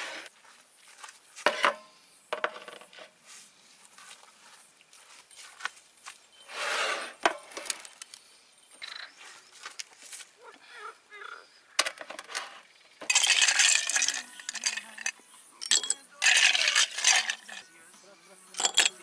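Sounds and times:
dishes clinking on a table: 18.6s - 19.0s.

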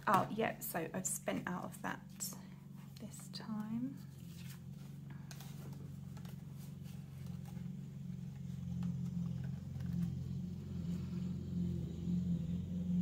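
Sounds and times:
muffled lawn mower engine: 1.4s - 13.0s
binder pages clicking and rustling: 4.1s - 10.4s.

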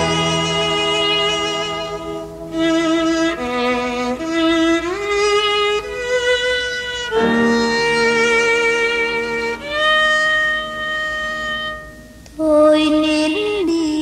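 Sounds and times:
violin playing long held notes: 0.0s - 12.2s
low sustained note: 0.0s - 13.1s.

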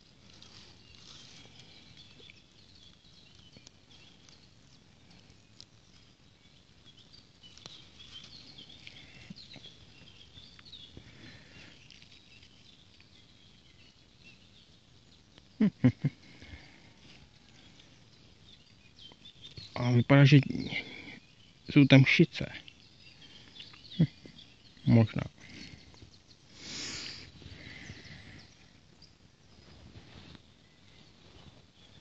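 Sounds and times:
leaves and stems rustling: 0.0s - 6.2s
distant birds chirping: 0.2s - 32.0s.

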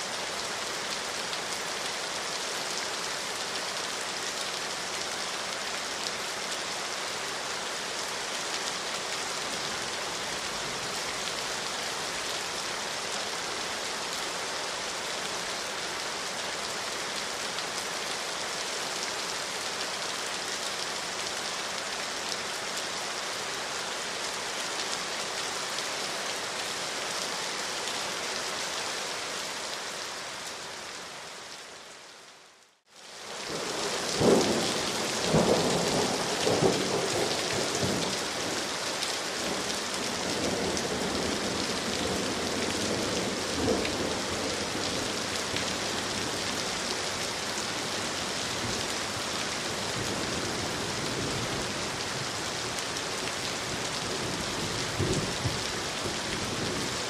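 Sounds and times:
steady rainfall: 0.0s - 57.0s.

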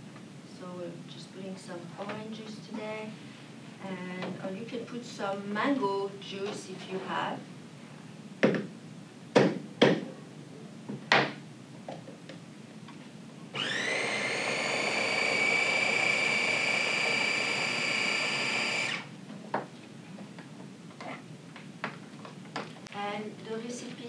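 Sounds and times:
electric blender running: 13.6s - 19.1s.

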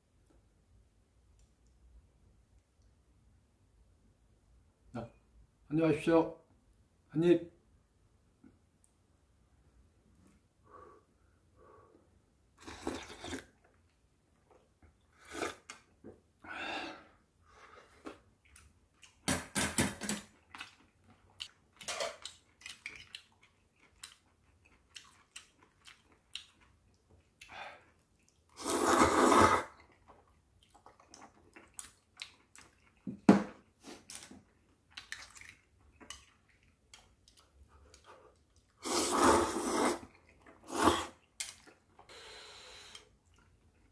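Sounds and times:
slurping noodles: 12.6s - 13.6s, 15.2s - 15.8s, 28.5s - 29.8s, 38.8s - 41.3s, 42.0s - 43.1s
chewing: 20.2s - 28.6s, 29.7s - 33.1s, 34.0s - 38.8s, 40.0s - 42.1s, 42.8s - 43.9s.

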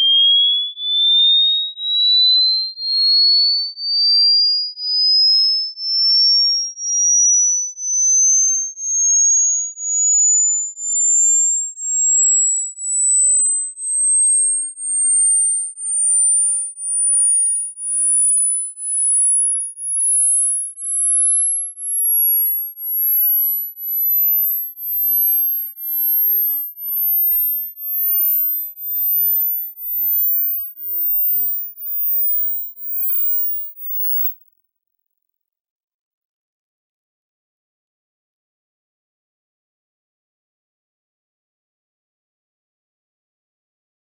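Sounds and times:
rising sine tone sweep: 6.0s - 34.3s.

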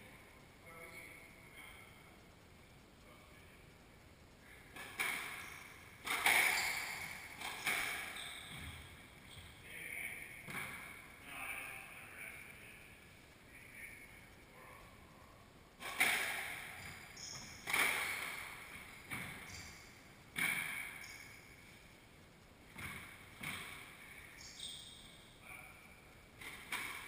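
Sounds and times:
squash ball hits ringing: 4.8s - 8.8s
sneakers squeaking on hardwood: 4.8s - 9.6s, 15.8s - 21.5s, 22.7s - 25.2s.

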